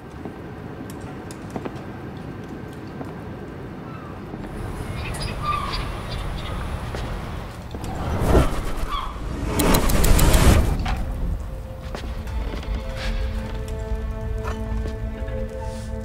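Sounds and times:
low background noise: 0:00.0 - 0:08.9
short bird calls: 0:04.8 - 0:06.8
scattered clicks: 0:07.6 - 0:11.5.

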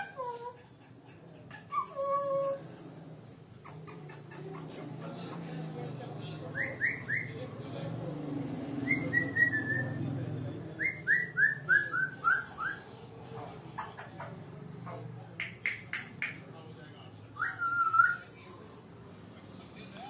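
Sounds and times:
parrot whistling: 0:06.5 - 0:07.4, 0:08.8 - 0:10.0, 0:10.8 - 0:12.8, 0:17.4 - 0:18.2.

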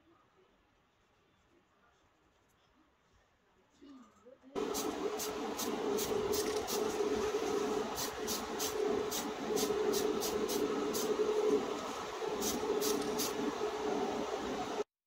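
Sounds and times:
aerosol spray hissing: 0:04.6 - 0:14.8
extraction fan humming: 0:04.6 - 0:15.0.

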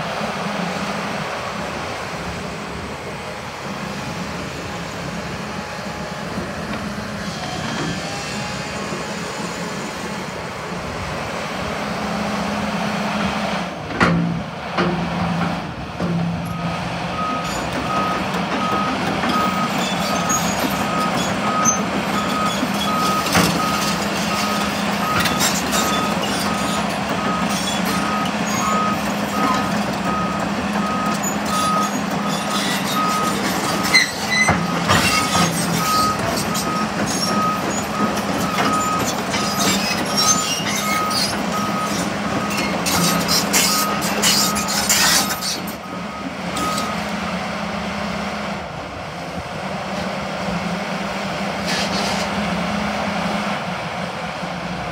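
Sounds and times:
diesel engine running: 0:00.0 - 0:54.9
steel tracks clanking on gravel: 0:17.4 - 0:47.1
travel alarm beeping: 0:27.2 - 0:31.9, 0:35.8 - 0:39.6, 0:40.2 - 0:42.7, 0:45.8 - 0:47.1.

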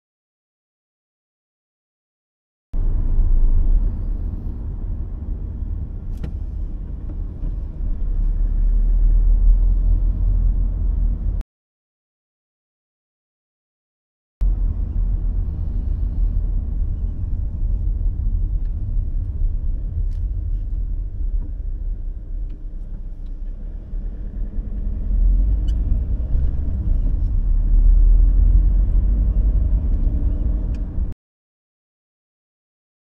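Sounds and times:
car engine rumble: 0:02.8 - 0:11.4, 0:14.4 - 0:31.2
road noise inside car: 0:02.8 - 0:11.4, 0:14.4 - 0:31.2.

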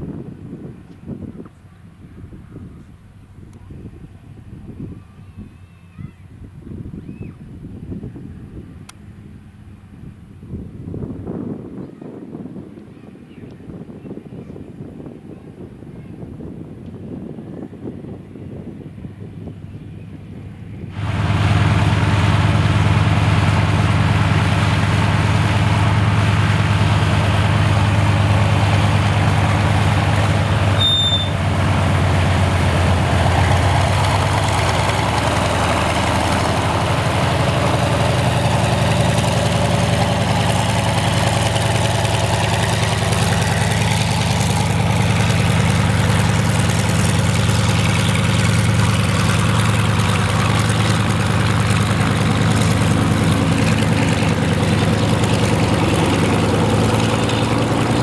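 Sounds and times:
radial engine throbbing: 0:21.0 - 0:58.0.

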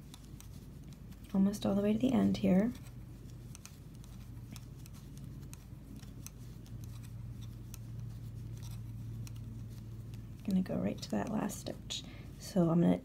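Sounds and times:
wooden knitting needles clicking: 0:00.0 - 0:11.9
steady low hum: 0:00.0 - 0:13.0.

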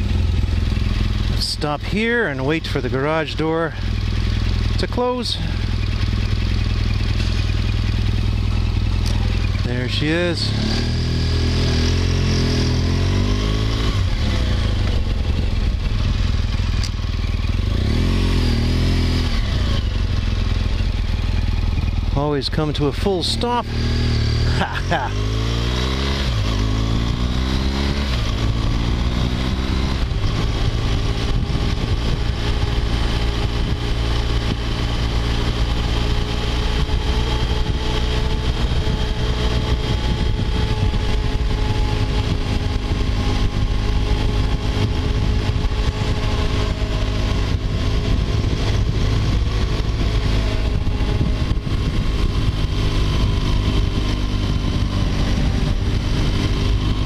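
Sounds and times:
motorcycle engine revving: 0:00.0 - 0:57.0
wind rushing over microphone: 0:25.1 - 0:57.0.

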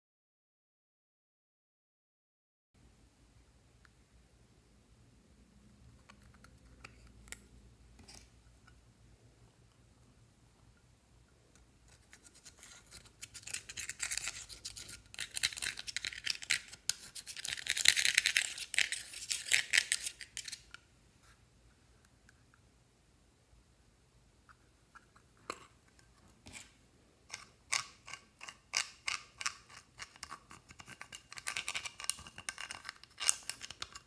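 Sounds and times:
metal pick scratching powder: 0:11.9 - 0:20.7, 0:26.4 - 0:34.0.

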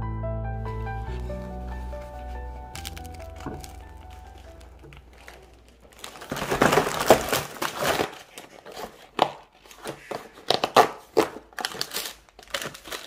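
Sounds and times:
plastic packaging crinkling: 0:00.7 - 0:13.0
cardboard box tearing: 0:02.8 - 0:13.0.

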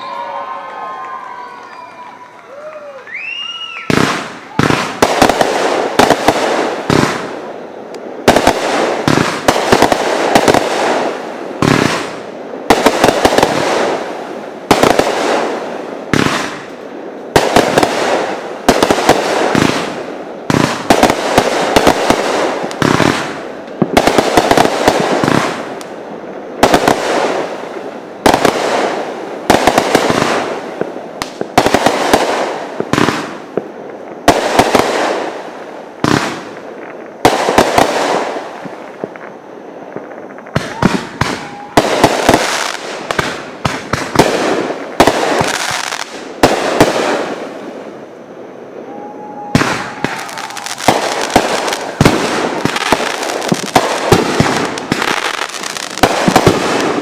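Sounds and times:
fireworks bangs with crackle: 0:00.0 - 0:57.0.

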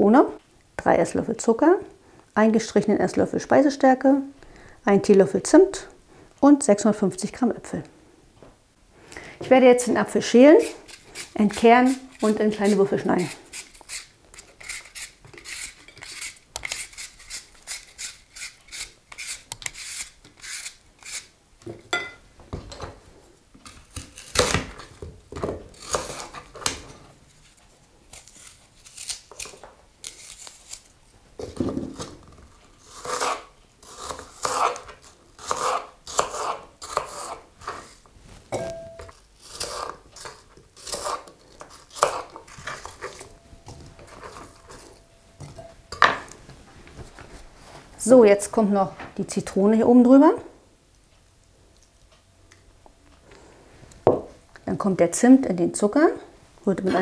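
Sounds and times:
knife scraping apple: 0:10.5 - 0:21.4, 0:25.7 - 0:26.7, 0:28.1 - 0:30.9, 0:32.7 - 0:38.1, 0:38.8 - 0:45.0.

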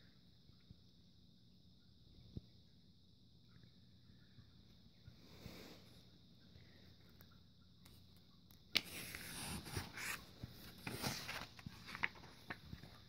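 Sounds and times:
paper crinkle: 0:08.8 - 0:13.0
paper rustling and sliding: 0:08.8 - 0:13.0
small paper clicks: 0:09.9 - 0:13.0.

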